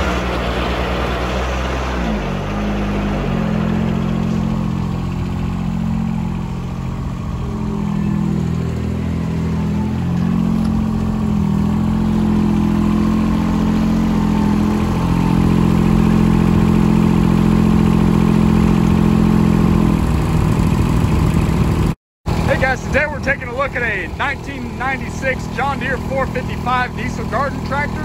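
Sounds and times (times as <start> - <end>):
diesel tractor engine running: 0.0 - 28.0.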